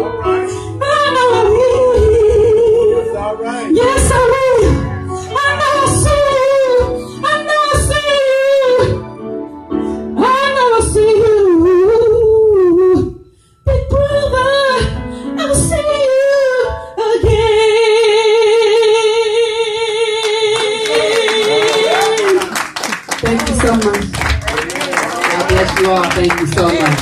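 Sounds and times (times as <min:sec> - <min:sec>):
woman singing into a microphone: 0:00.0 - 0:09.2, 0:10.1 - 0:22.4.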